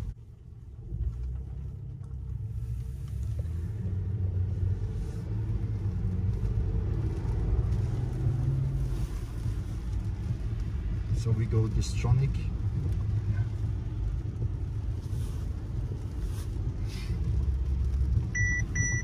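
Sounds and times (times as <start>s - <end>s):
road and tyre noise in car cabin: 0.0s - 19.0s.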